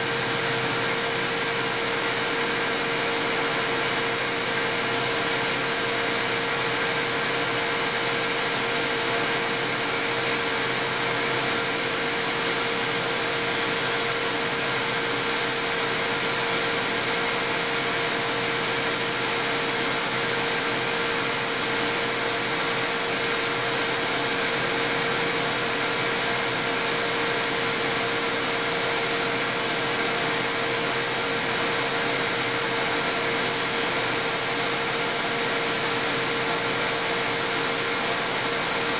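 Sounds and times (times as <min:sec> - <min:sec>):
metal lathe whirring: 0:00.0 - 0:38.9.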